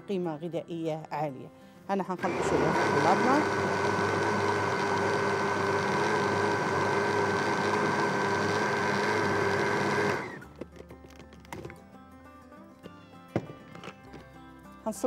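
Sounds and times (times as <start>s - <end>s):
blender running: 2.2s - 10.4s.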